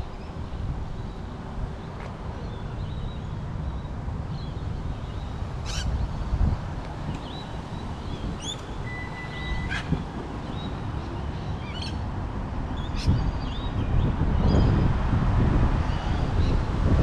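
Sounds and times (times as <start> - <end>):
birds chirping: 7.2 - 14.8.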